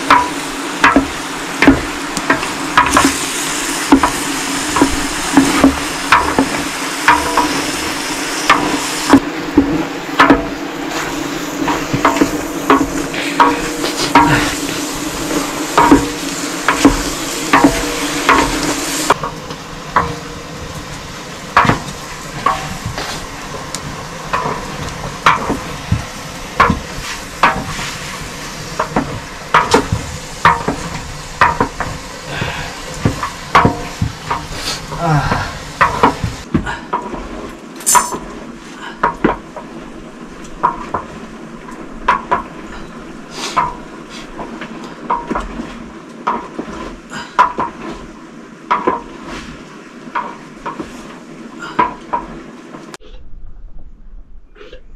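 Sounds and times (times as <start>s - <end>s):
utensil knocking and scraping pan: 0.0s - 20.3s, 21.5s - 37.2s
meat sizzling in a pan: 12.2s - 19.2s.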